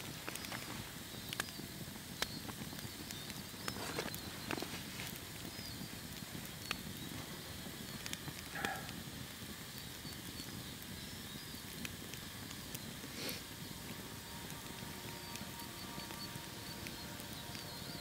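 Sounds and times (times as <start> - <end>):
campfire crackling and popping: 0.0 - 18.0.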